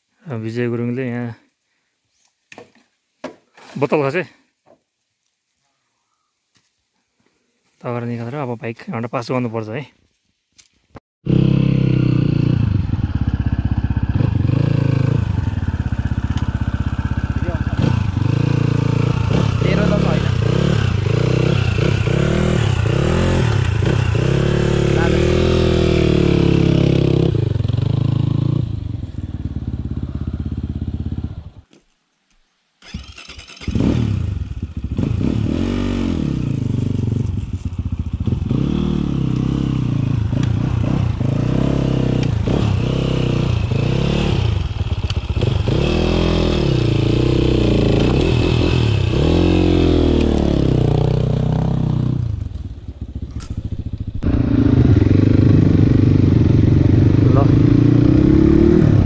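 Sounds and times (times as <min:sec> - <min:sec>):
dirt bike engines revving: 0:11.3 - 0:31.6, 0:32.9 - 0:59.0.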